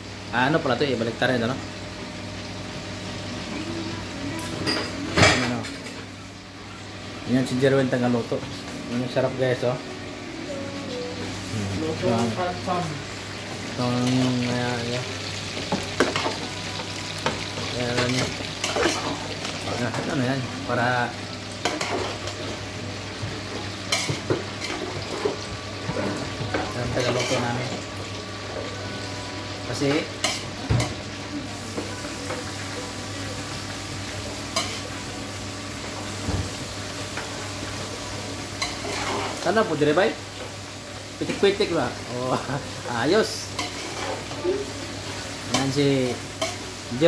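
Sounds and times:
chicken sizzling in oil: 11.2 - 47.0.

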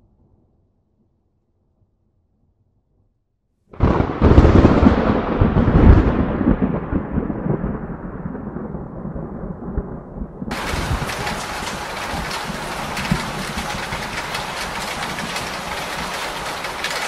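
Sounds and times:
thunder rumbling: 3.8 - 17.0
heavy rain hiss: 10.5 - 17.0.

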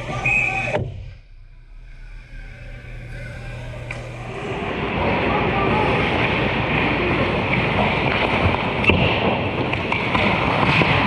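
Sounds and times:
arena noise: 0.0 - 11.0
hockey sticks clacking: 6.0 - 11.0.

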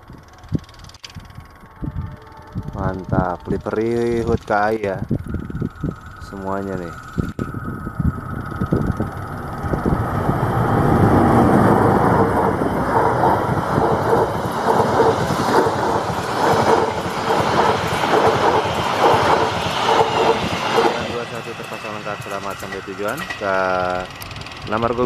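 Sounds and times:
locomotive rushing past: 1.3 - 25.0
wheels clattering over rail joints: 9.0 - 25.0.

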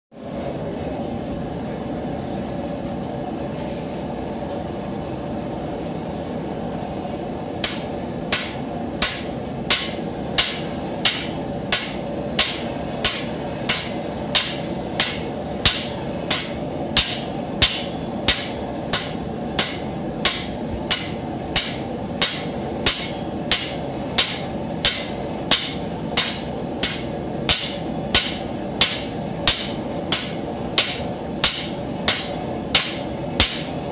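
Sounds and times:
gas forge burner: 0.2 - 33.9
hammer ringing on anvil: 7.6 - 33.7.

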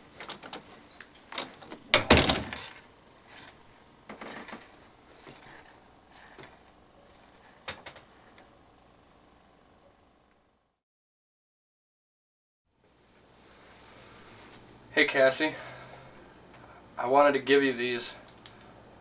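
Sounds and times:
door clicks and knocks: 1.4 - 2.6.

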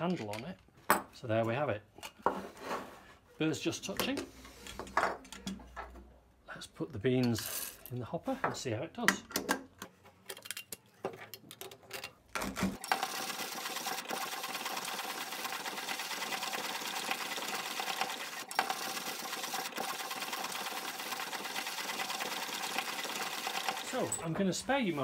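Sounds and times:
hand grinder grinding coffee beans: 12.4 - 24.6.

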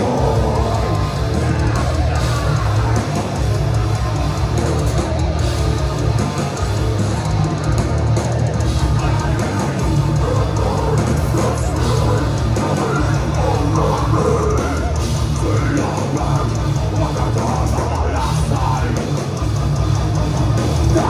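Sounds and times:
distorted electric guitars: 0.0 - 21.0
pounding drum kit: 0.0 - 21.0.

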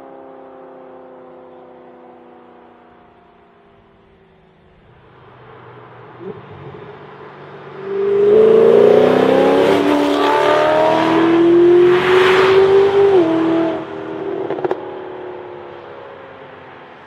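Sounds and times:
sports car engine accelerating: 5.9 - 17.0.

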